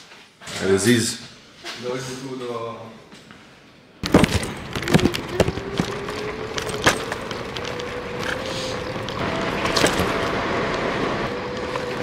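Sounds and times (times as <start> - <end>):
vehicle running: 4.0 - 12.0.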